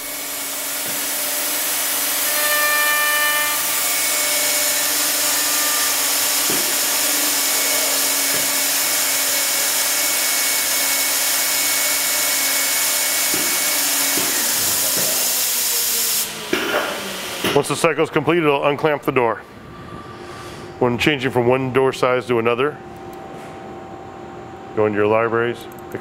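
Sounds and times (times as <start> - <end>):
router high-pitched whir: 0.0 - 17.6.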